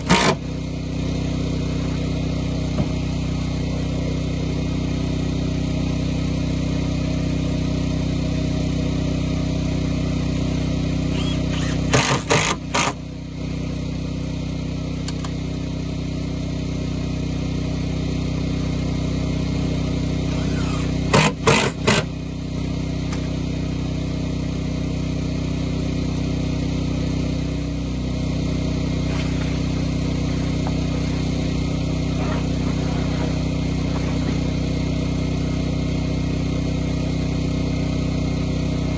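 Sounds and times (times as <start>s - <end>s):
impact driver driving screws: 0.0s - 0.4s, 11.1s - 13.0s, 20.3s - 22.1s
generator engine running: 0.0s - 38.9s.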